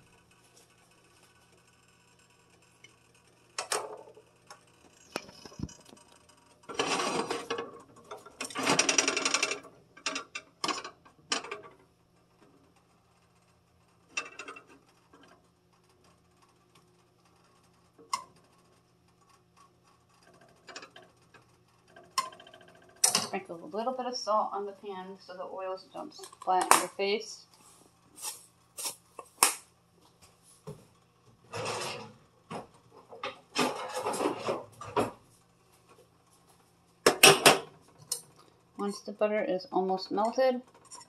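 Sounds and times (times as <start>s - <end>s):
cookware rattling and rustling: 6.7s - 11.8s, 31.5s - 35.3s, 37.0s - 38.2s.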